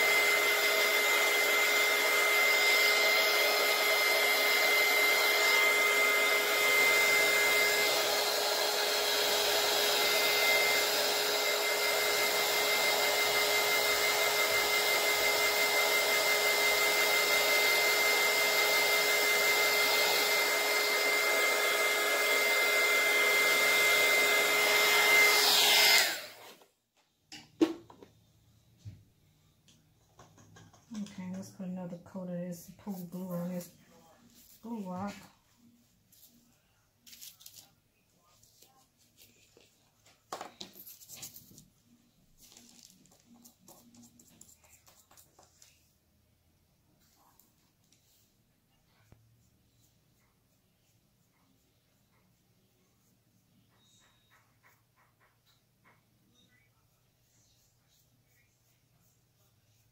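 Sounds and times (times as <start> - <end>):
heat gun blowing air: 0.0 - 26.6.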